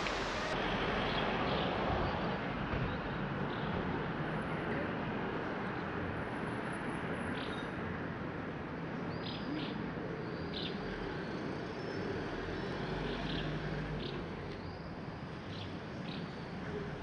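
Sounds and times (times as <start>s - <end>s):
distant traffic hum: 0.0s - 8.6s.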